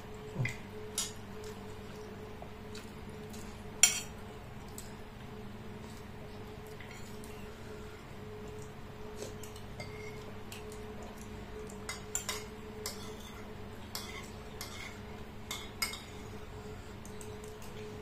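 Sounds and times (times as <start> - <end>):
cutlery clinking on ceramic bowls: 3.8 - 4.1, 11.9 - 16.2.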